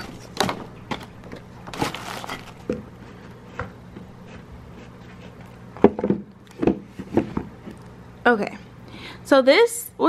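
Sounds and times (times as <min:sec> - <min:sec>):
tissue paper rustling: 0:01.7 - 0:02.6.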